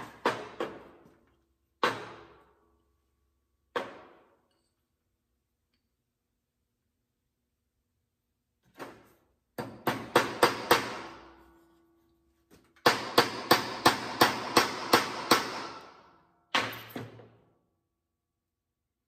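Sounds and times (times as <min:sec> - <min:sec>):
hammer striking metal wedge: 0:00.0 - 0:01.0, 0:01.8 - 0:02.6, 0:03.7 - 0:04.6, 0:09.6 - 0:11.6, 0:12.6 - 0:17.2.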